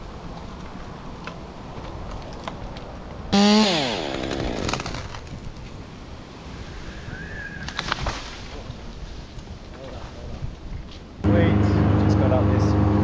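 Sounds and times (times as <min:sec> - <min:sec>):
chainsaw engine revving: 0:03.4 - 0:05.1.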